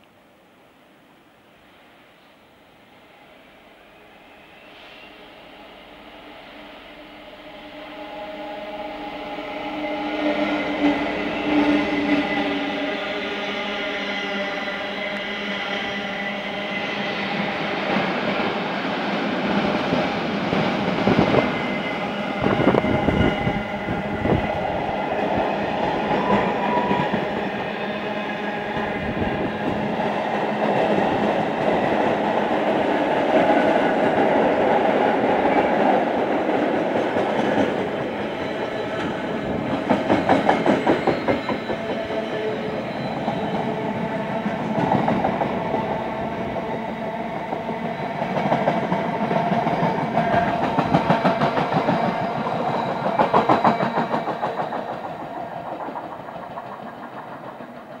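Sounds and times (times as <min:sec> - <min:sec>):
train rumble: 0:05.1 - 0:58.0
train wheels clattering over rail joints: 0:50.3 - 0:58.0.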